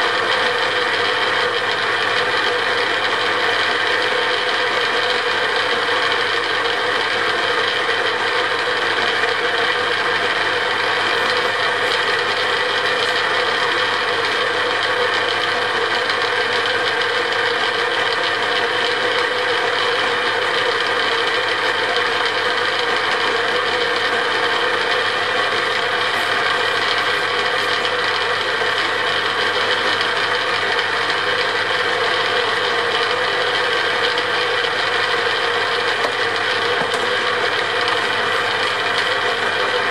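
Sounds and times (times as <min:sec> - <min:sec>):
metal lathe gears whining: 0:09.6 - 0:16.9, 0:23.9 - 0:39.9.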